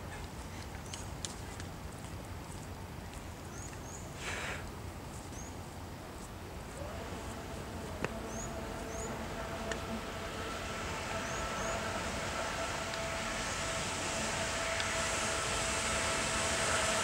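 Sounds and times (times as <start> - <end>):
distant electric motor whine: 6.5 - 17.0.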